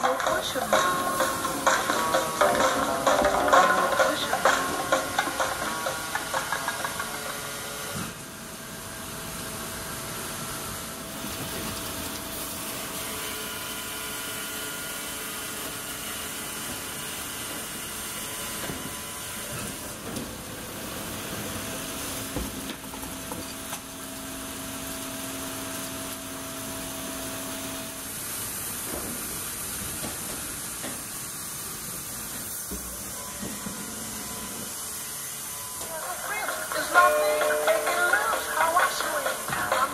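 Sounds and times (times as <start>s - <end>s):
music: 0.0s - 7.0s, 35.8s - 39.9s
hissing sawmill machinery: 0.0s - 39.9s
machine whining tones: 32.7s - 39.9s.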